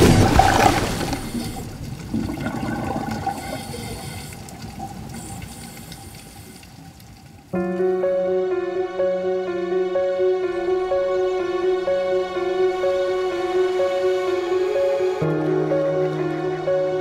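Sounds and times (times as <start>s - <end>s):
water rushing and bubbles: 0.0s - 8.1s.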